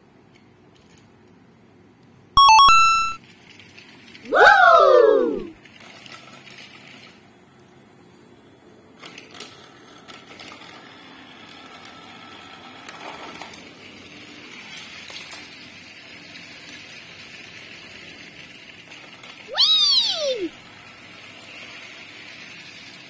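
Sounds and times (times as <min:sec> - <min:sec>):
loud falling tone: 0:02.4 - 0:03.2, 0:04.3 - 0:05.5, 0:19.5 - 0:20.5
toy train rattling hum: 0:03.2 - 0:07.6, 0:08.7 - 0:23.0.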